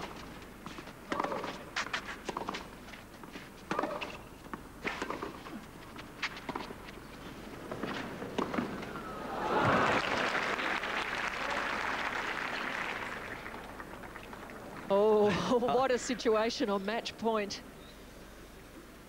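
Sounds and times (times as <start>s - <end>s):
racquets hitting tennis ball: 0.0s - 9.0s
crowd noise: 8.6s - 16.5s.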